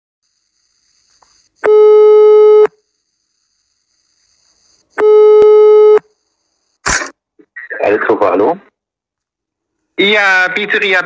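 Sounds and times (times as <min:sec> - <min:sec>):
telephone ringback beeps: 0:01.6 - 0:02.8, 0:05.0 - 0:06.1.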